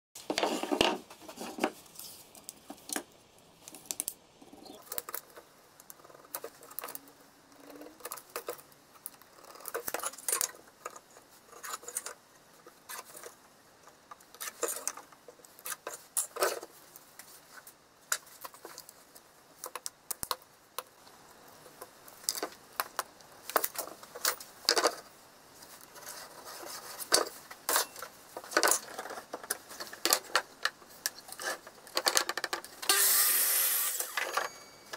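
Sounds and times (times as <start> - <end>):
tools handled on wooden workbench: 26.0 - 32.7.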